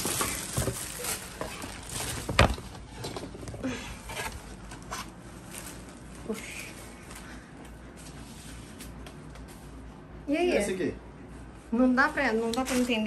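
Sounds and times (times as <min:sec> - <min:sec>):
cardboard box rustling and knocking: 0:00.0 - 0:03.4.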